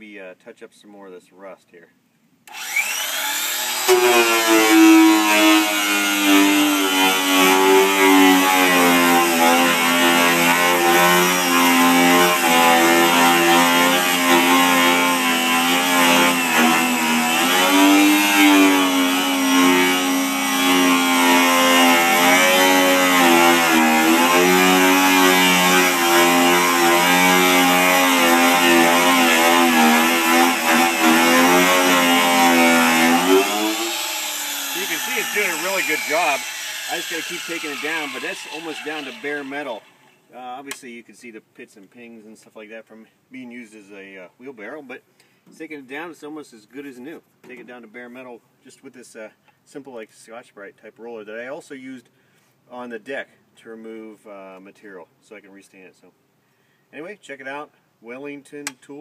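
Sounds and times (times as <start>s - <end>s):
angle grinder motor whine: 2.5s - 7.6s, 28.1s - 40.1s.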